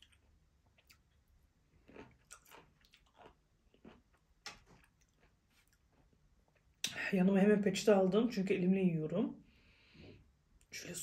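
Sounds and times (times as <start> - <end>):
person chewing crunchy vegetables: 0.0 - 6.8.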